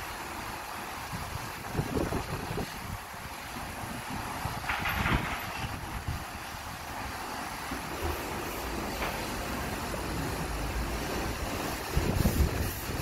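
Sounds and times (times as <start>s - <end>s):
wind buffeting microphone: 1.0s - 6.9s, 11.4s - 13.0s.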